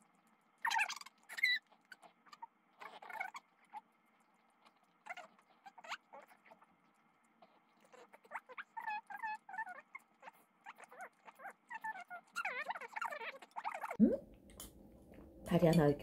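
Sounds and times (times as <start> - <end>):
dog chewing and lip-smacking: 0.0 - 14.0
small dog whimpering: 0.6 - 3.8, 4.7 - 6.6, 7.4 - 14.0.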